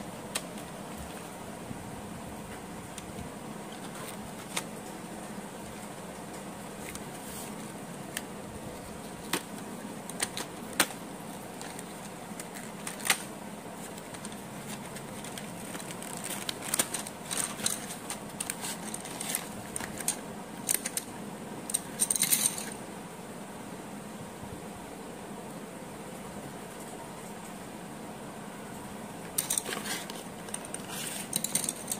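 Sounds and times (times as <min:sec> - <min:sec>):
steady hiss: 0:00.0 - 0:31.9
pencils clicking and tapping: 0:02.9 - 0:07.2, 0:09.0 - 0:21.1, 0:29.3 - 0:31.9.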